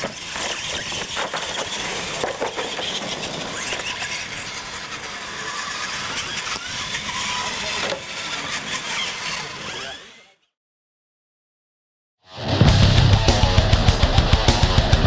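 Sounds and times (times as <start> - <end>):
toy truck motors racing: 0.0 - 10.6.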